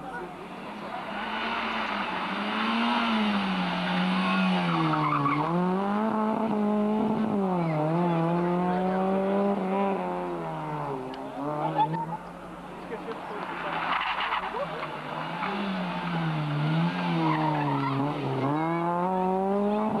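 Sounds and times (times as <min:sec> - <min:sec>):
rally car engine revving: 0:00.0 - 0:20.0.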